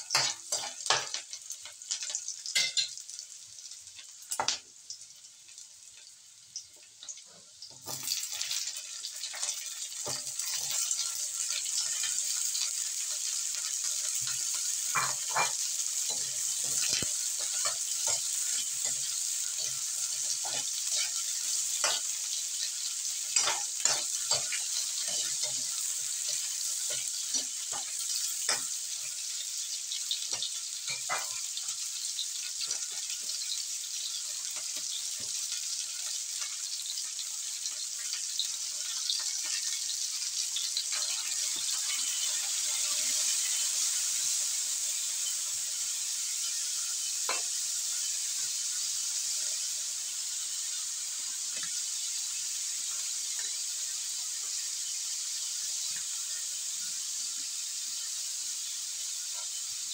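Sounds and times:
chicken feet sizzling in a wok: 0.0 - 59.9
metal utensils scraping a pan: 0.1 - 1.3, 9.2 - 31.8, 40.9 - 44.3, 45.1 - 48.5.

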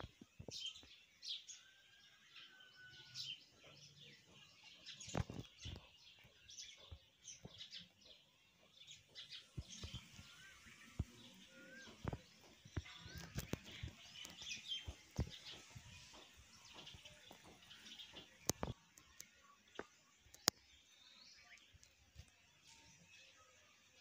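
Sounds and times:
birds chirping: 0.0 - 24.0
sharp clicks and knocks: 12.0 - 20.6.

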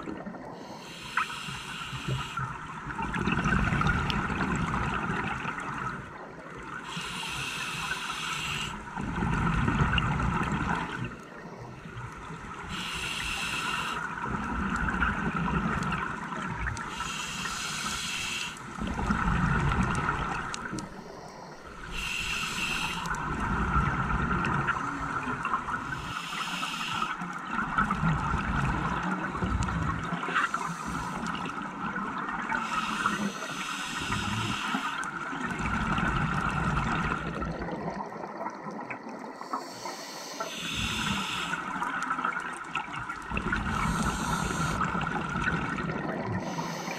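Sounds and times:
regulator air hiss on inhale: 0.5 - 2.5, 6.8 - 8.9, 12.7 - 14.2, 16.9 - 18.7, 20.9 - 23.2, 25.9 - 27.2, 30.3 - 31.4, 32.6 - 35.2, 39.4 - 41.8, 43.7 - 45.0, 46.4 - 46.9.

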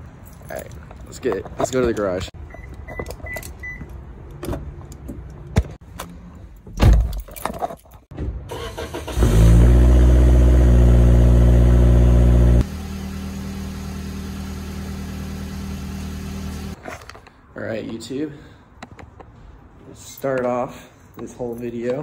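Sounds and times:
car engine starting and running: 8.5 - 16.8.

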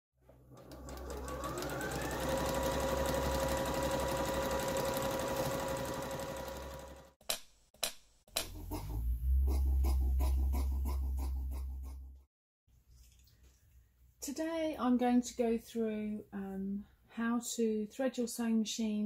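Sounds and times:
sewing machine stitching: 0.2 - 7.2.

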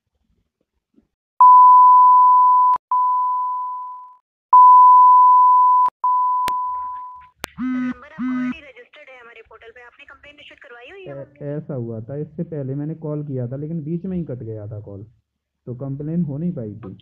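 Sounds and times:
electronic beep tone: 1.4 - 8.5.

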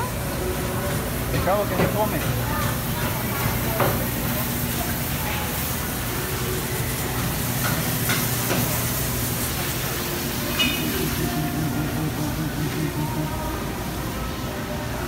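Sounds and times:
refrigeration and ventilation hum: 0.0 - 15.0.

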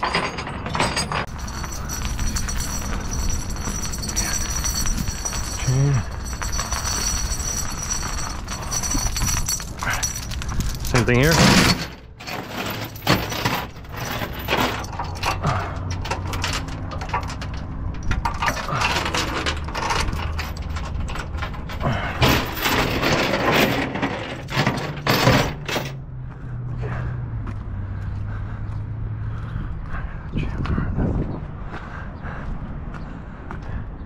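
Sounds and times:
steel chain rattling: 0.0 - 26.0.

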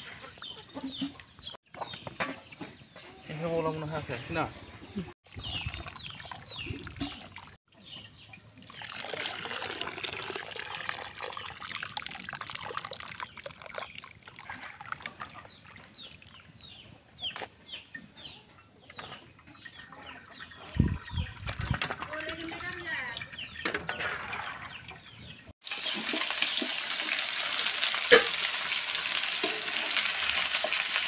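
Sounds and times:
chickens clucking and peeping: 0.0 - 5.2, 7.7 - 8.7, 15.3 - 21.4, 23.2 - 25.5.

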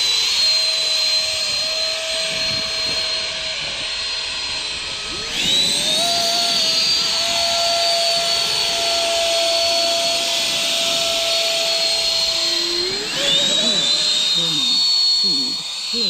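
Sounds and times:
electric ducted fans whining: 0.0 - 16.0.

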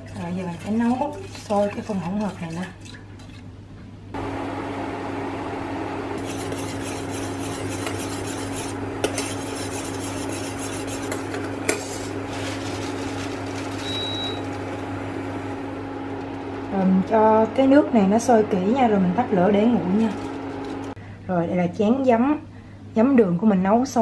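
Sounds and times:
steady hum: 3.6 - 23.2
metal spoon scraping a saucepan: 6.2 - 12.6.

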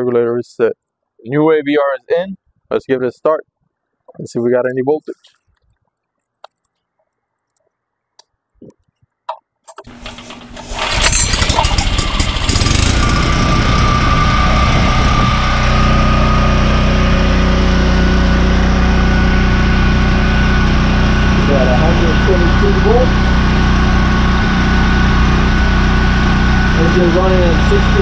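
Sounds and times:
generator engine starting and running: 9.8 - 28.0.

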